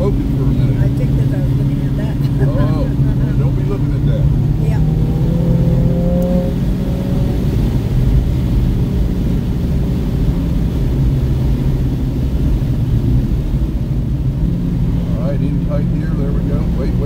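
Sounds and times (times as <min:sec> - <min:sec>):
car engine drone: 0:00.0 - 0:17.0
tyre and road rumble: 0:00.0 - 0:17.0.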